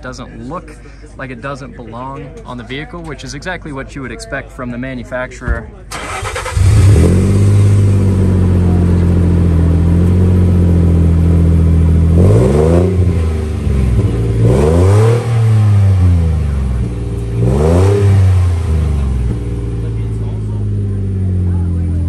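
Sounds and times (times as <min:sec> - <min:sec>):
car engine idling and revving: 0:05.9 - 0:22.0.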